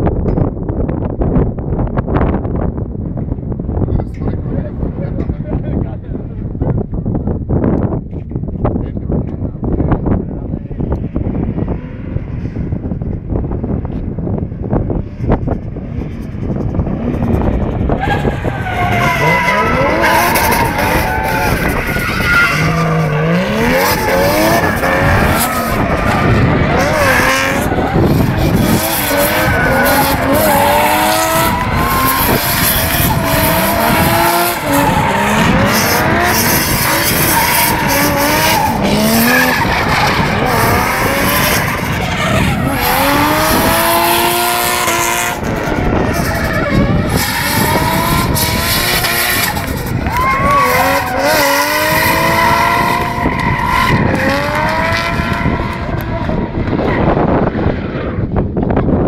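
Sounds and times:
car engines revving: 0:09.2 - 0:58.6
tyres skidding and squealing: 0:16.1 - 0:58.4.

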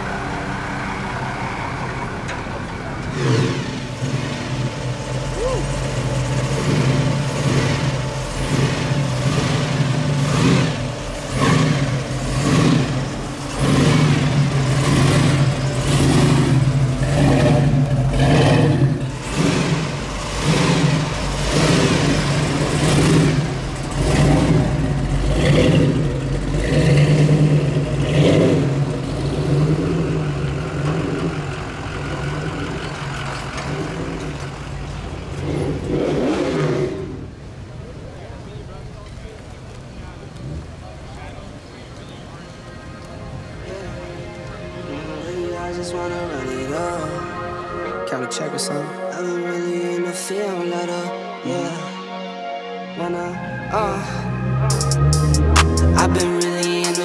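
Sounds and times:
low engine drone: 0:00.0 - 0:38.2, 0:39.8 - 0:57.0
car engine throttle blips: 0:00.0 - 0:51.6, 0:53.0 - 0:57.0.

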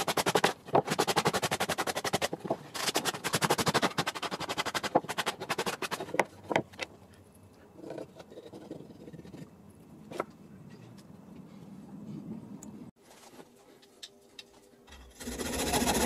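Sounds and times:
sandpaper rubbing on wood: 0:15.2 - 0:16.0.

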